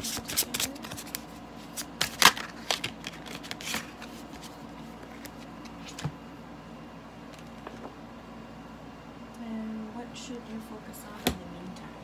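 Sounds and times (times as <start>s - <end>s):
cards snapping and slapping: 0.0s - 4.1s.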